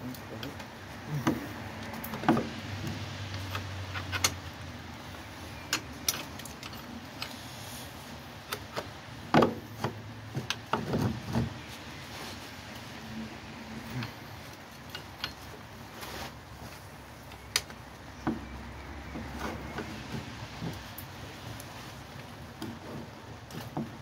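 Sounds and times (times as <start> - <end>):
metal tools clinking and knocking: 5.1 - 7.4, 13.8 - 15.6.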